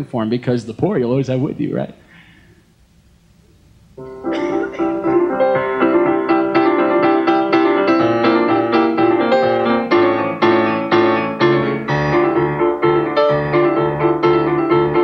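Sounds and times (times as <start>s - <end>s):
grand piano chords: 4.0s - 15.0s.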